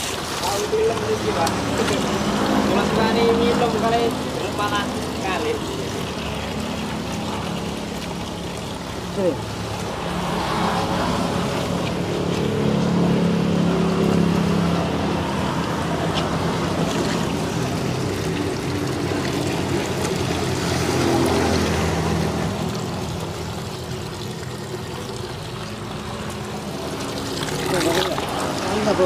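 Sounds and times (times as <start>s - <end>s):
water trickling and splashing: 0.0s - 29.0s
hands scrubbing soapy body: 15.4s - 29.0s.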